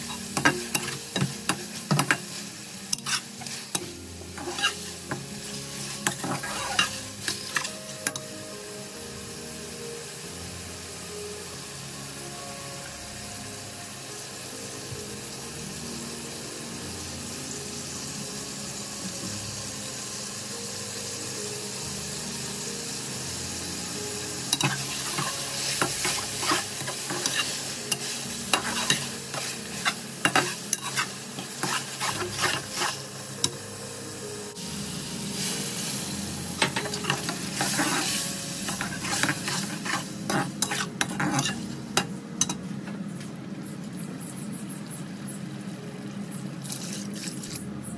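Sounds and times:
food sizzling in a pot: 0.0s - 47.9s
spatula scraping pot: 2.9s - 3.6s, 4.3s - 5.2s, 6.0s - 8.2s, 24.5s - 33.0s, 36.6s - 42.1s.

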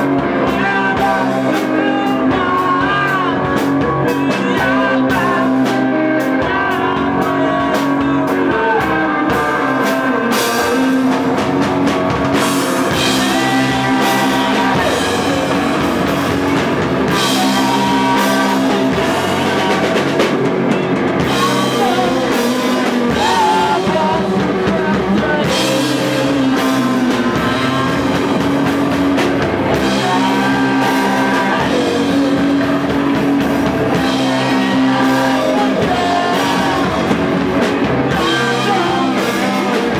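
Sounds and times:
rock band playing live: 0.0s - 39.9s.

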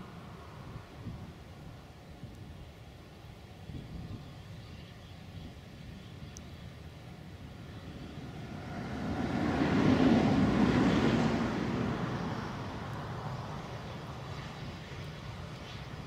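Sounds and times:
vehicle passing by: 8.2s - 13.9s.

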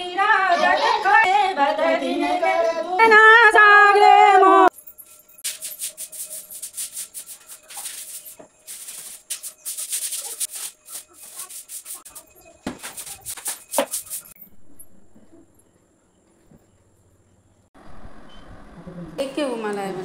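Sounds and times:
floor being scrubbed by hand: 5.4s - 14.4s.

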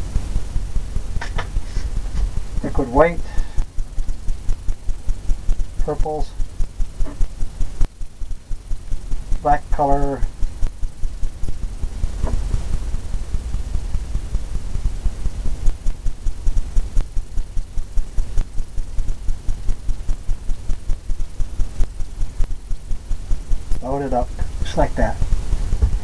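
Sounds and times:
paint rubbing on palette: 1.2s - 2.4s.

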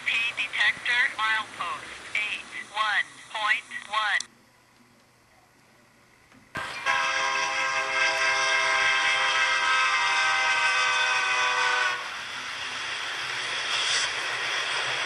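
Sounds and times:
model train running noise: 0.0s - 3.6s, 6.6s - 15.0s
model train horn blast: 6.8s - 12.3s.

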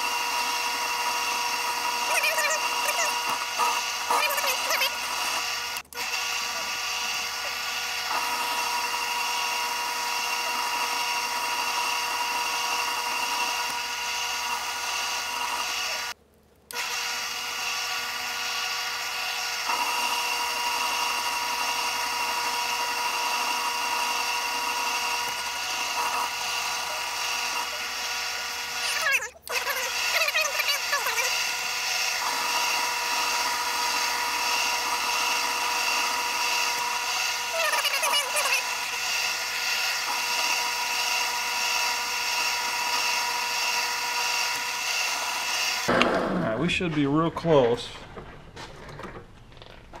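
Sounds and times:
metal lathe whining: 0.0s - 48.2s.

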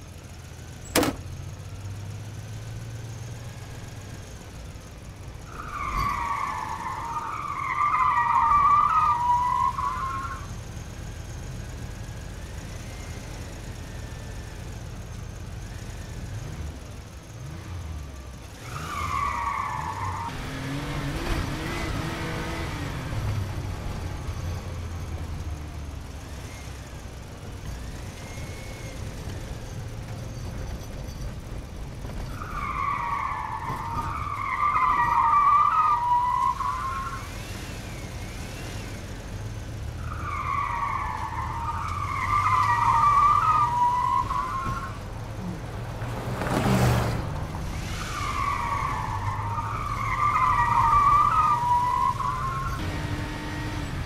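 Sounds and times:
car tyres squealing: 5.1s - 14.2s, 18.5s - 54.0s.

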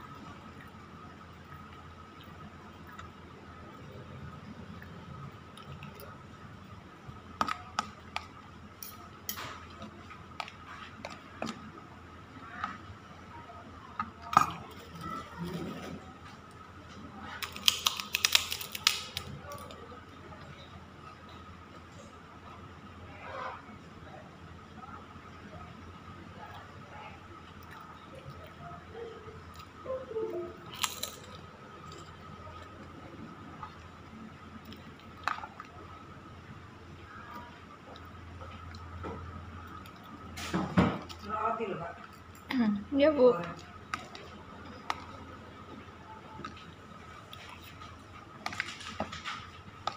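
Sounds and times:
faint steady whine: 0.0s - 49.9s
steady low hum: 0.0s - 49.9s
cracker crunching: 16.5s - 20.0s, 30.6s - 36.1s.

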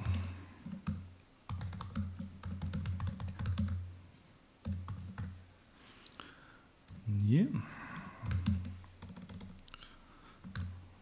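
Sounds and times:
laptop keyboard typing: 0.0s - 3.8s, 4.6s - 5.4s, 8.0s - 9.6s, 10.4s - 10.7s
low steady hum: 0.0s - 11.0s.

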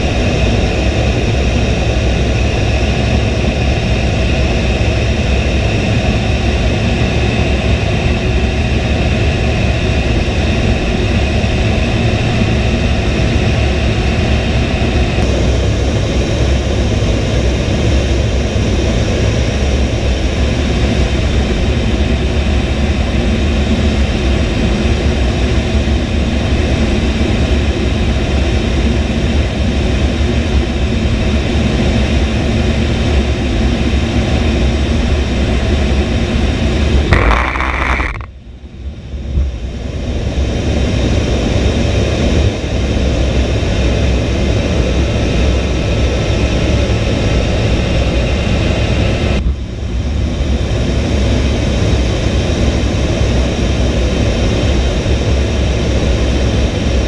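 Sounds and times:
jet engine roar in cockpit: 0.0s - 57.0s
thin engine whine: 37.1s - 38.3s.

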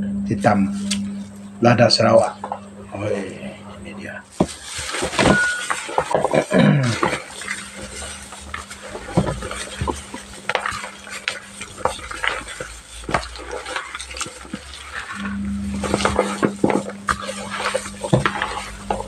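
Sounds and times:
plastic rustling: 0.7s - 19.0s
small knocks and scrapes: 4.3s - 19.0s
wet squelching of fish: 4.3s - 19.0s.

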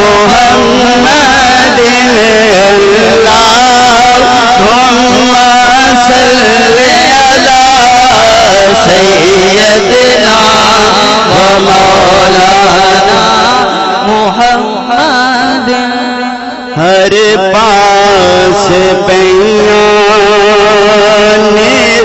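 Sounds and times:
man singing amplified: 0.0s - 22.0s.

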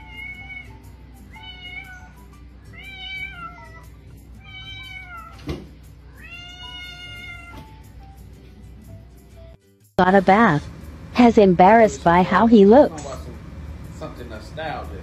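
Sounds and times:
cat meowing: 0.0s - 5.5s, 6.1s - 7.8s.

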